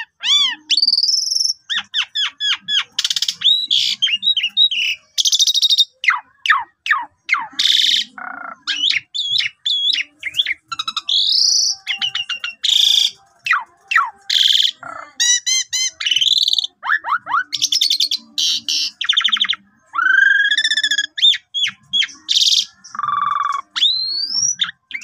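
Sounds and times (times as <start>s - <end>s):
starling singing: 0.0s - 25.0s.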